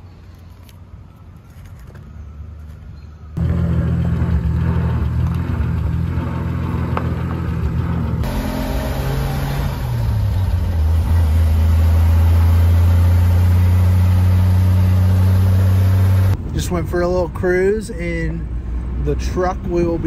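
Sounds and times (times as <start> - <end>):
engine drone inside cab: 3.4 - 16.4
truck engine driving past: 3.4 - 16.4.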